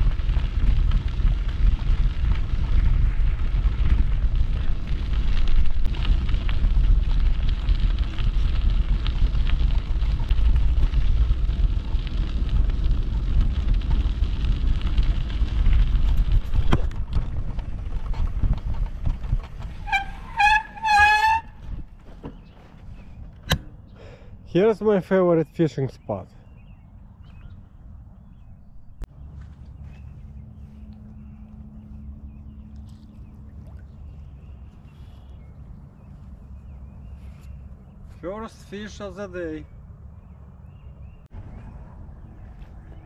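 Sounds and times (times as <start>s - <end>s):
wind buffeting microphone: 0.0s - 24.5s.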